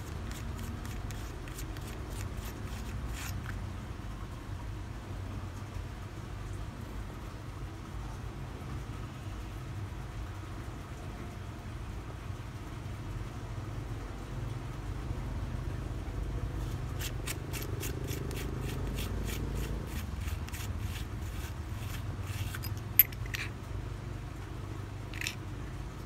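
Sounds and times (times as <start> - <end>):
steady low hum: 9.6 - 26.0.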